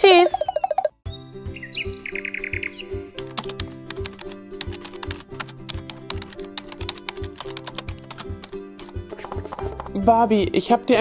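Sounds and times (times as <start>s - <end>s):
background music with beat: 2.4s - 11.0s
keyboard typing clicks: 3.2s - 10.0s.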